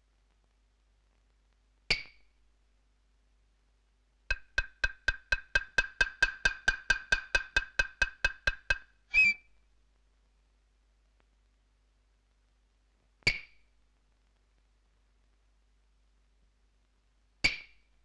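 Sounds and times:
wood block knocks: 0:04.3 - 0:08.9.

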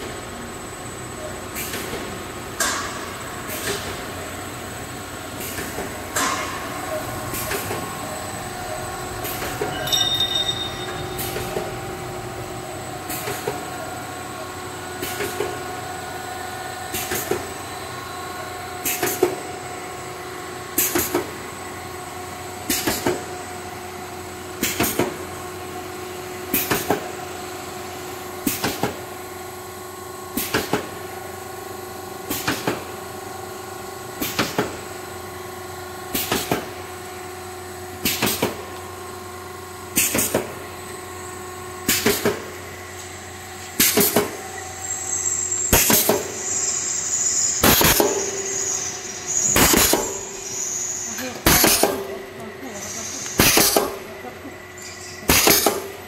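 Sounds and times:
extruder machine humming: 0:00.0 - 0:18.8, 0:39.8 - 0:56.0
machine double clank: 0:09.2 - 0:11.8, 0:45.7 - 0:46.6, 0:47.6 - 0:50.5, 0:51.4 - 0:52.2, 0:54.9 - 0:55.9.

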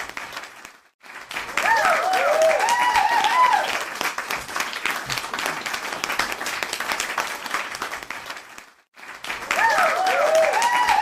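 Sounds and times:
crowd clapping: 0:00.0 - 0:11.0
crowd cheering whoops: 0:01.6 - 0:03.8, 0:09.5 - 0:11.0.

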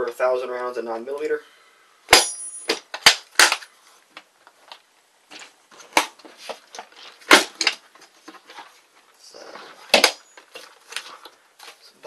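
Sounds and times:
plastic cans knocking together: 0:09.9 - 0:11.2.

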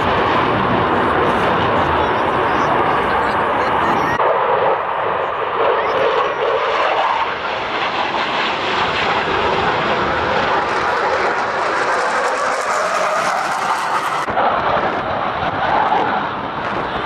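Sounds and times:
jet engines roaring: 0:00.0 - 0:17.0.

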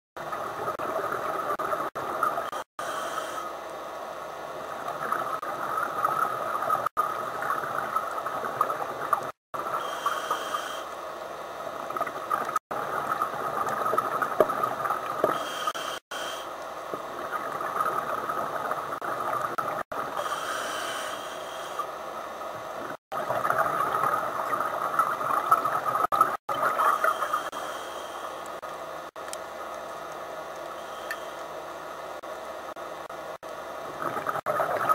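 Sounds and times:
regulator inhale hiss: 0:02.8 - 0:03.6, 0:09.8 - 0:11.0, 0:15.2 - 0:16.6, 0:20.2 - 0:21.9, 0:27.0 - 0:28.6, 0:30.8 - 0:31.5.

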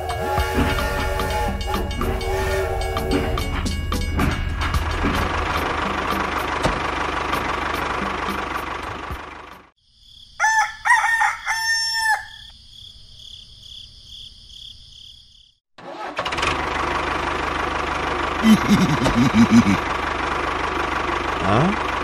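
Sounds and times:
high chirring: 0:00.0 - 0:08.7
rooster crowing: 0:10.3 - 0:12.5.

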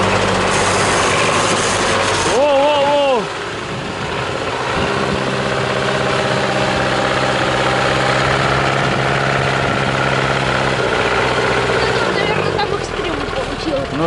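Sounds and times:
truck engine running under load: 0:00.0 - 0:14.0.

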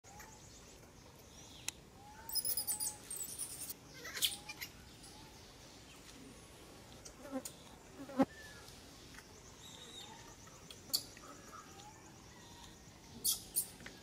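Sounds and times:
baby monkey squeaky calls: 0:02.3 - 0:04.7.

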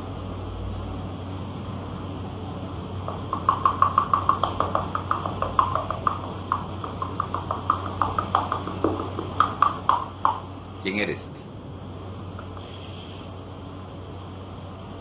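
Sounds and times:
steady low hum: 0:00.0 - 0:15.0
rapid even clicking: 0:03.0 - 0:10.6.

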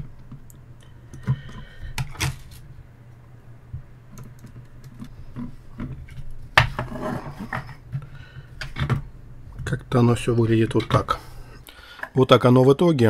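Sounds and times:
low steady hum: 0:00.0 - 0:13.0
rubbing and scraping: 0:05.0 - 0:08.9.

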